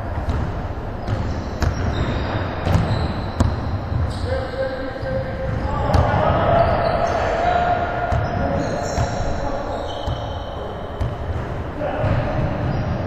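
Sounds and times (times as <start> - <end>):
basketball bouncing on wooden floor: 0.2 - 4.0, 11.0 - 13.0.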